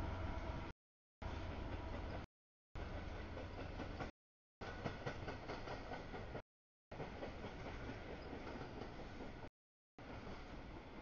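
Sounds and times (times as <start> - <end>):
train wheels rumbling on rail: 0.0 - 11.0
wheels clicking over rail joints: 1.6 - 6.4.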